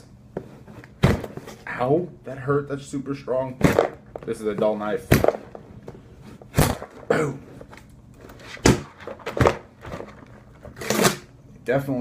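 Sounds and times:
cardboard thumps and scrapes: 0:00.4 - 0:01.6.

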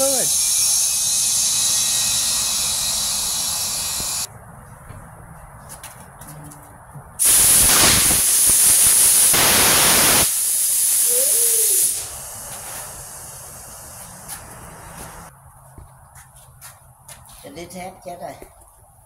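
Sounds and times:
compressed air hissing into tire: 0:00.0 - 0:04.3, 0:07.2 - 0:15.3.

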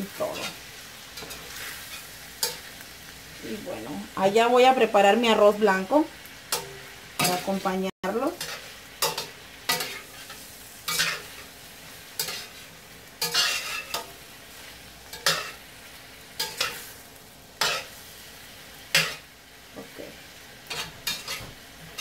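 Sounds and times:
shrimp sizzling in frying pan: 0:00.0 - 0:22.0
utensil scraping pan: 0:12.2 - 0:14.2.

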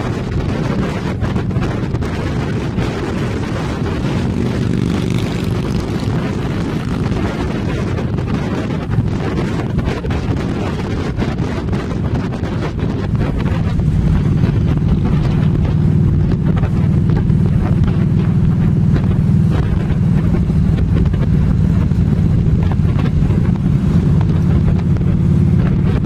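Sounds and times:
wind buffeting microphone: 0:00.0 - 0:26.0
trike engine running: 0:01.3 - 0:08.3.

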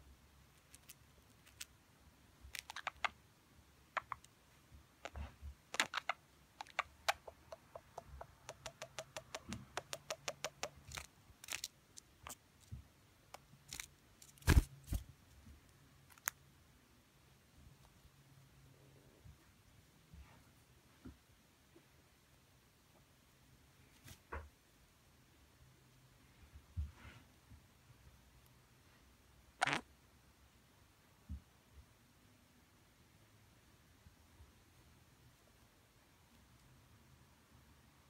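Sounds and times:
budgerigar clicking chirps: 0:03.9 - 0:04.3, 0:05.7 - 0:11.0.

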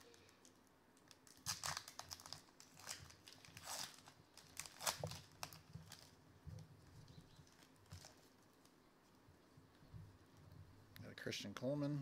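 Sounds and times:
foil wrapper crinkling and tearing: 0:00.0 - 0:06.2, 0:07.0 - 0:08.7.

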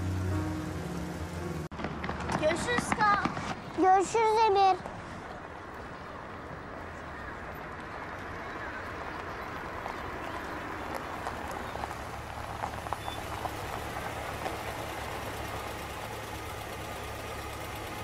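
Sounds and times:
car engine idling: 0:00.0 - 0:01.7, 0:08.9 - 0:18.0.

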